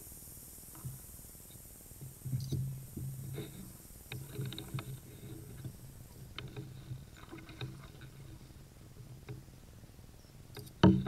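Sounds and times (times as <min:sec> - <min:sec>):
low steady hum: 0:00.0 - 0:11.0
paddle knocks and splashes: 0:10.8 - 0:11.0.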